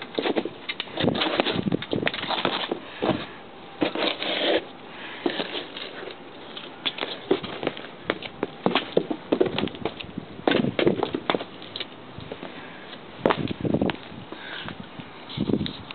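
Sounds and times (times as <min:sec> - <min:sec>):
boots scraping: 0:00.0 - 0:06.2, 0:06.8 - 0:12.6, 0:13.2 - 0:14.5
boots stomping on concrete: 0:06.9 - 0:11.6, 0:13.2 - 0:14.0.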